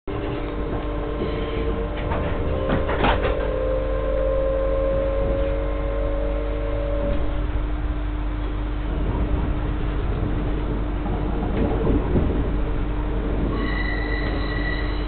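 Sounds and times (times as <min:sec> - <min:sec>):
train rumble and hum: 0:00.0 - 0:15.0
rising train whine: 0:00.1 - 0:15.0
train clunks: 0:00.1 - 0:15.0.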